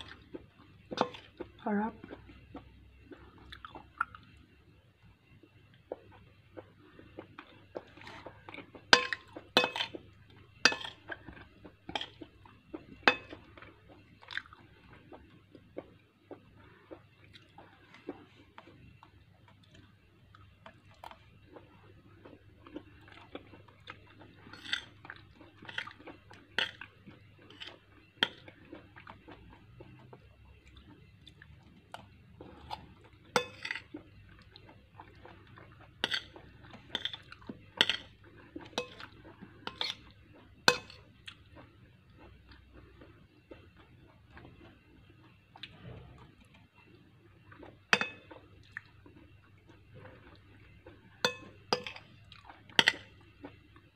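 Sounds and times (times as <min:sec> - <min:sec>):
chewing vegetables: 0:00.0 - 0:04.5, 0:05.4 - 0:53.9
metal spoon clinking glass bowl: 0:33.4 - 0:33.9, 0:51.2 - 0:52.1.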